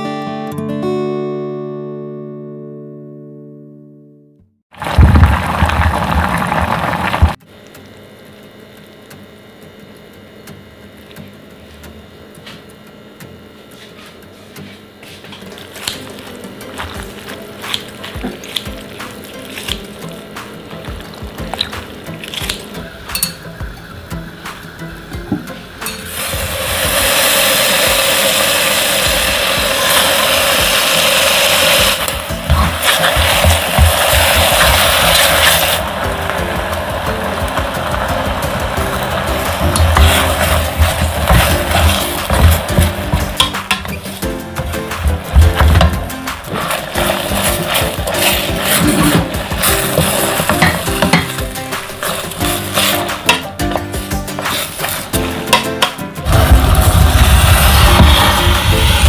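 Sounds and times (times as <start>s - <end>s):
wet seaweed squishing by hand: 15.5s - 22.8s, 29.6s - 53.4s
loud rushing noise: 56.2s - 59.0s.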